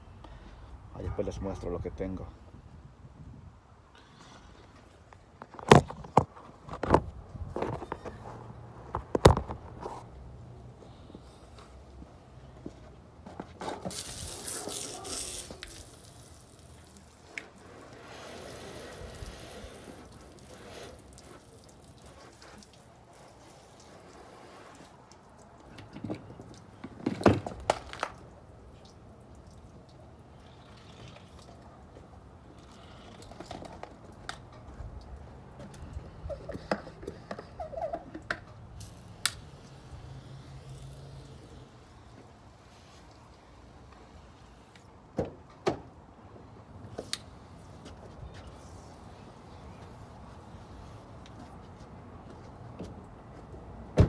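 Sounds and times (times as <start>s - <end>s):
water dripping and splashing: 13.9s - 17.6s, 19.0s - 27.0s, 27.6s - 32.3s, 38.6s - 42.4s
water spraying from hose: 13.9s - 25.7s, 38.6s - 44.8s.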